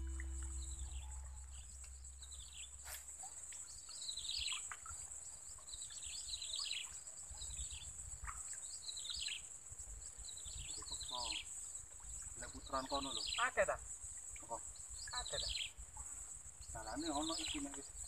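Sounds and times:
bird chirping: 0.0 - 2.9
high-pitched insect drone: 0.0 - 3.0.

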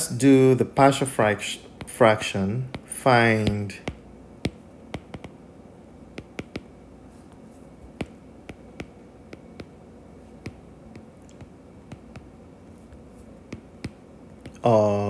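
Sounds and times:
faint room hum: 0.0 - 15.0
stylus tapping on glass screen: 2.7 - 5.4, 6.1 - 6.8, 7.9 - 9.8, 10.4 - 12.3, 12.9 - 14.6.

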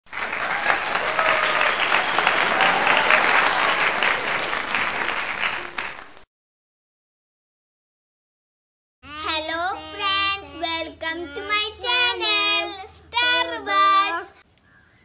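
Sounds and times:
crowd applauding: 0.0 - 6.2.

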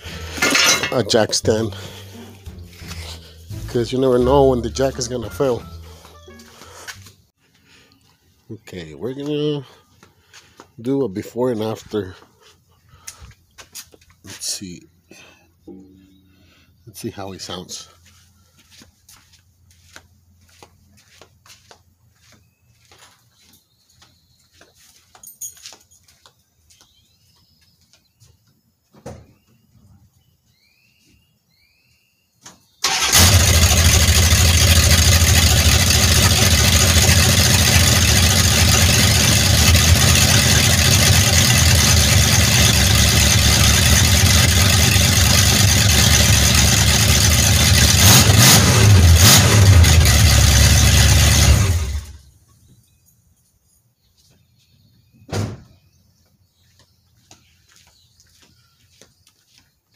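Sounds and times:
pickup truck engine running: 0.0 - 6.2, 32.9 - 52.2
engine revving: 32.8 - 52.2.

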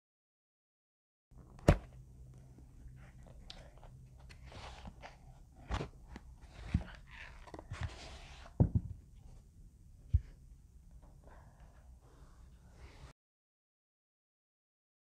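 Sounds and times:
case rustling and scraping: 3.7 - 8.9.

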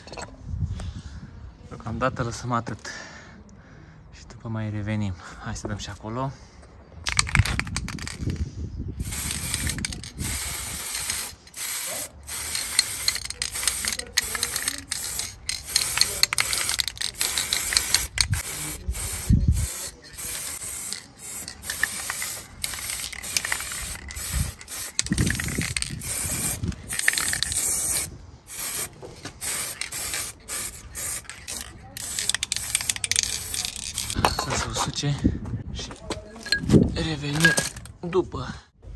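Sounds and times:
spray paint can hissing: 7.1 - 8.4, 9.0 - 34.2.

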